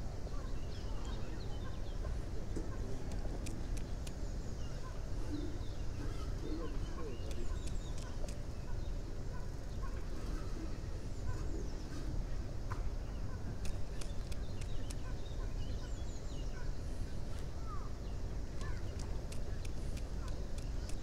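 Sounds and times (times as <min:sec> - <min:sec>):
birds chirping and calling: 0:00.3 - 0:21.0
sharp clicks: 0:03.1 - 0:04.2, 0:07.2 - 0:08.4, 0:13.6 - 0:15.1, 0:18.6 - 0:21.0.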